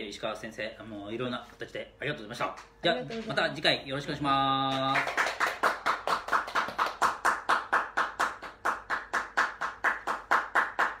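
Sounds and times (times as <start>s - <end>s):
hand clapping: 4.6s - 11.0s.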